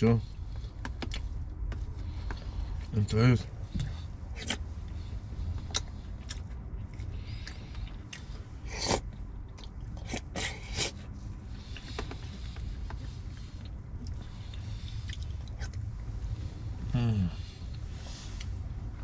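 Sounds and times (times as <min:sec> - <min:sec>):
low steady hum: 0:00.0 - 0:19.0
person chewing food: 0:03.7 - 0:15.9.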